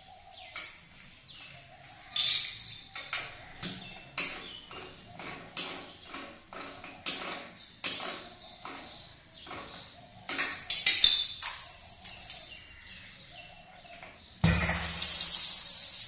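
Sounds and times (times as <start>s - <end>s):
water spraying hiss: 14.6s - 16.0s.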